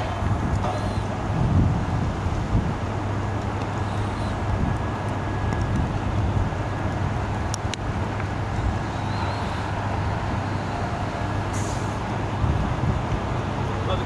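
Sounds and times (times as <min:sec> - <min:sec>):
low rumble of vehicle traffic: 0:00.0 - 0:14.0.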